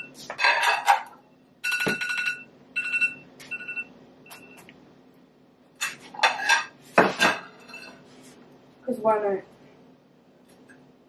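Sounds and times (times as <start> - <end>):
dishes clattering: 0.0 - 2.5, 5.8 - 8.0.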